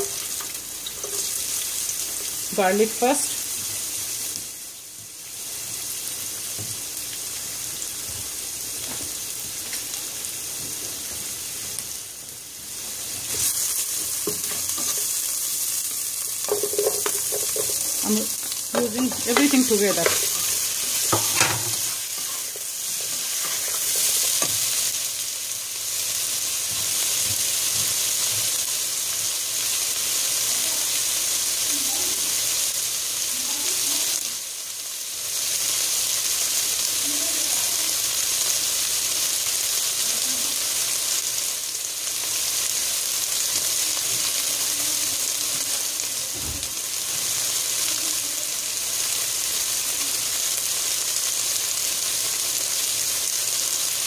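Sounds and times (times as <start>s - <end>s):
spatula stirring vegetables: 0.0s - 6.9s, 12.7s - 31.6s
vegetables sizzling in oil: 0.0s - 54.0s.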